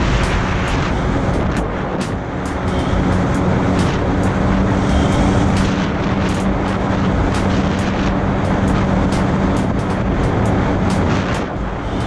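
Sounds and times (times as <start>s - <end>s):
jet ski engine running: 0.0s - 12.0s.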